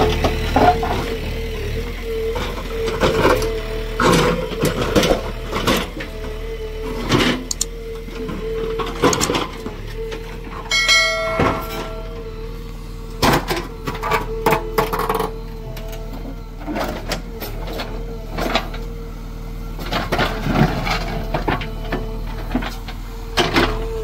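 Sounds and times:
backhoe engine hum and whine: 0.0 - 24.0
clanks and knocks: 8.9 - 9.6, 10.6 - 12.3.

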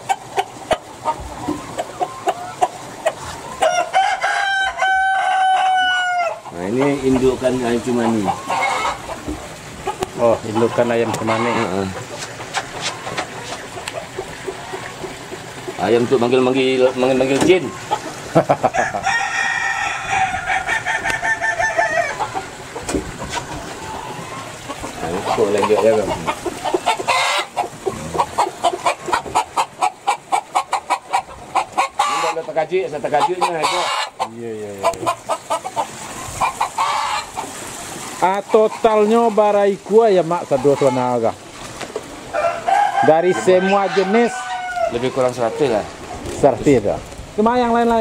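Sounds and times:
chickens clucking: 0.0 - 48.0
rooster crowing: 3.6 - 6.4, 18.6 - 22.5, 42.3 - 45.2.

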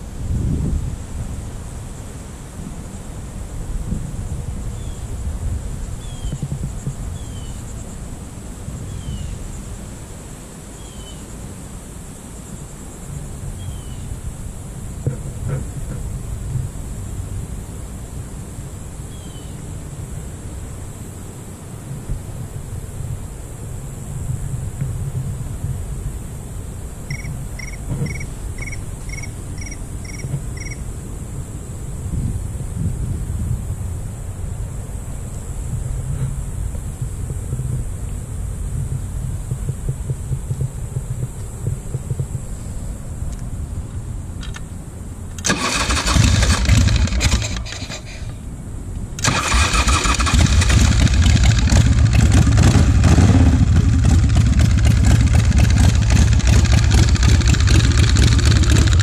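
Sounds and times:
wind rumble on microphone: 0.0 - 45.4, 50.2 - 59.0
bird chirping: 27.1 - 30.8
high-pitched insect drone: 27.1 - 30.9.

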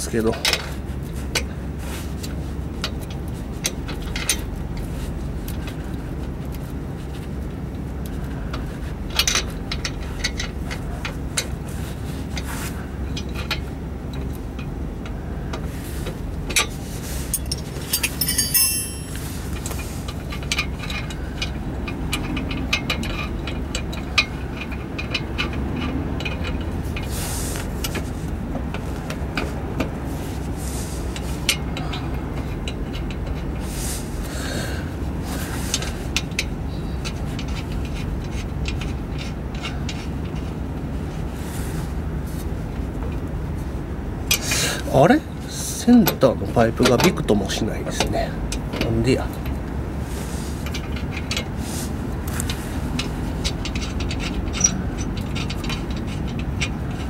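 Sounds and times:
steady low hum: 0.0 - 57.0
wrench metallic clicks: 17.4 - 27.1.

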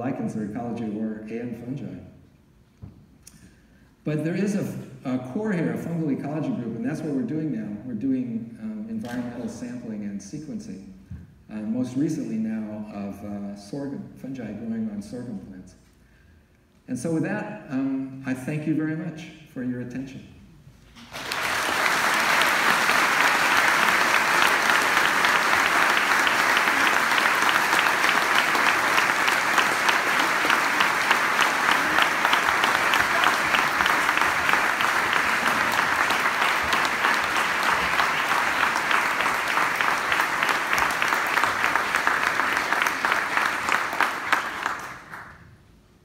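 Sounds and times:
audience applauding: 21.0 - 45.4.

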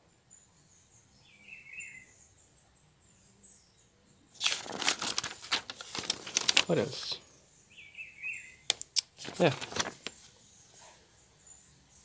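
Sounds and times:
paper manual rustling: 4.4 - 7.2, 8.7 - 10.3.

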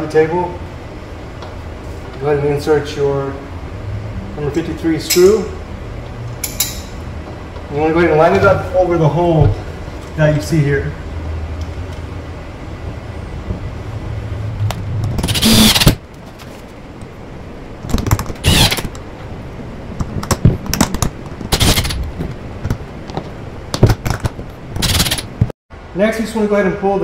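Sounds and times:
cordless drill driving screws: 15.2 - 16.0, 18.4 - 18.8, 24.8 - 25.3.

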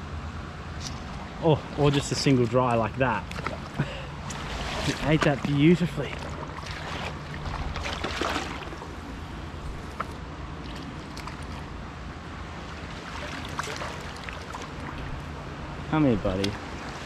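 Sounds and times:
stream water running: 0.7 - 17.0
fish splashing at surface: 3.2 - 11.8, 12.8 - 15.3.

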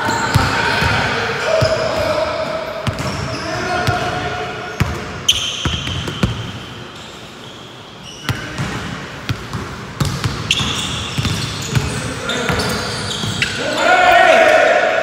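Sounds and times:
basketballs bouncing on hardwood floor: 8.3 - 13.4.

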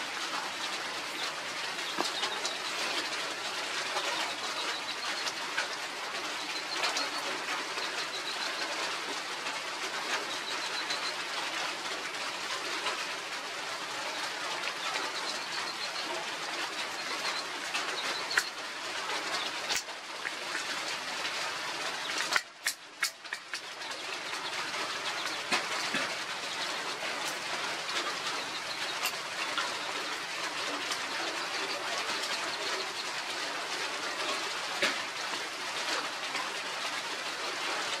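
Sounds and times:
steady outdoor hiss: 0.0 - 38.0
scattered clicks: 14.2 - 33.2.

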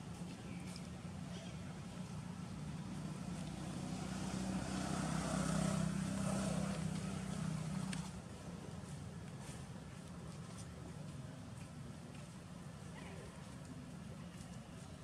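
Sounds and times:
passing vehicle engine drone: 3.1 - 8.2.

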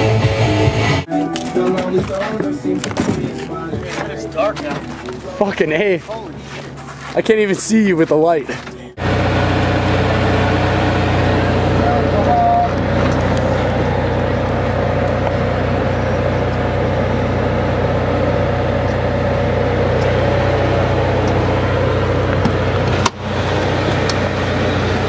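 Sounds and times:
motor humming: 9.0 - 25.0.

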